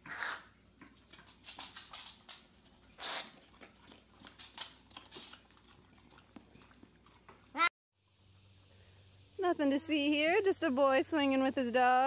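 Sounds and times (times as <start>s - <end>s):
dog licking and lip-smacking: 3.1s - 7.5s.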